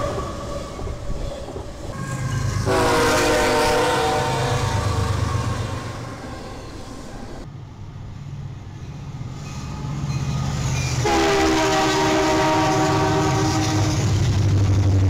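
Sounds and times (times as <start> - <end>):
train rumble: 0.0 - 15.0
locomotive horn chord: 1.9 - 6.8, 11.0 - 14.2.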